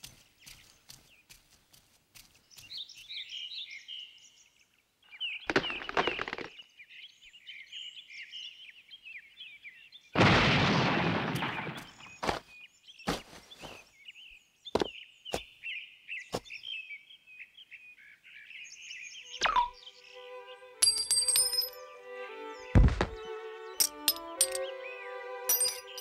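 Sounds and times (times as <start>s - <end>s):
birds chirping: 0.0s - 10.2s, 11.5s - 26.0s.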